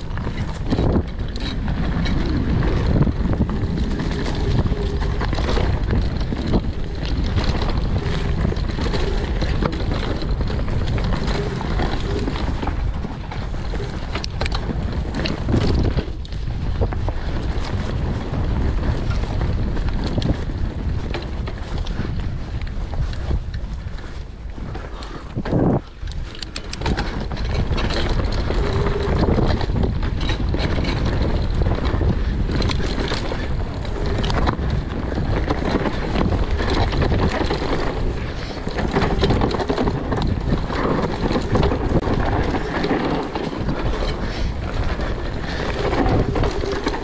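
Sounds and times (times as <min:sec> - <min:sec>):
bike clicks and knocks: 0:00.0 - 0:47.0
tyres rumbling on dirt: 0:00.0 - 0:47.0
wind buffeting microphone: 0:00.0 - 0:47.0.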